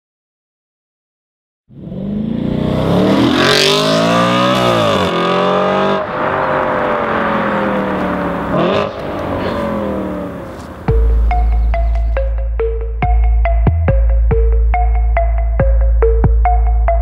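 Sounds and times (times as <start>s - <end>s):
car engine accelerating hard: 1.7s - 12.2s.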